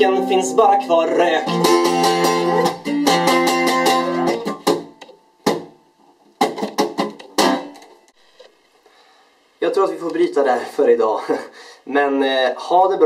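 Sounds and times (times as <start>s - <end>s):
guitar strumming chords: 0.0s - 5.8s, 6.4s - 8.0s.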